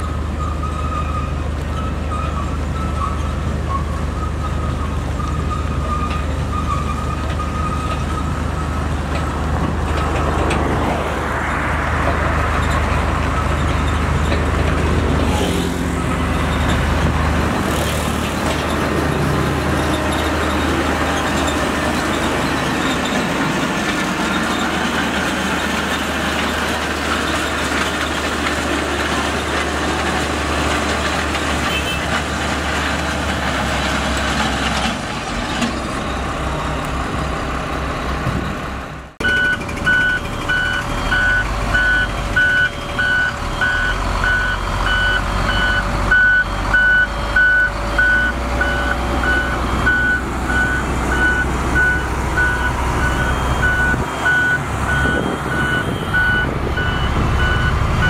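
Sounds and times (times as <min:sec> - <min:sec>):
diesel engine running: 0:00.0 - 0:58.0
reversing alarm beeping: 0:39.2 - 0:58.0.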